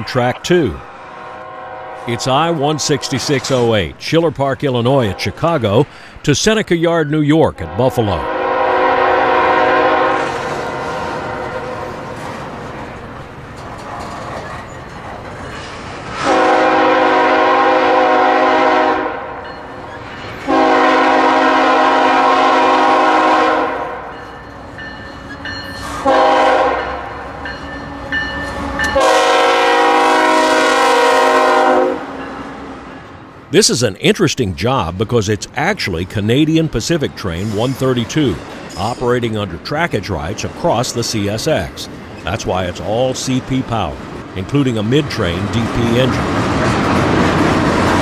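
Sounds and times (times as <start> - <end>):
locomotive air horn blasts: 1.0 - 3.5, 5.0 - 5.4, 7.7 - 11.7, 16.2 - 19.4, 20.5 - 24.2, 26.0 - 27.1, 28.0 - 32.2
train wheels rumbling on rails: 8.3 - 33.7, 34.9 - 48.0.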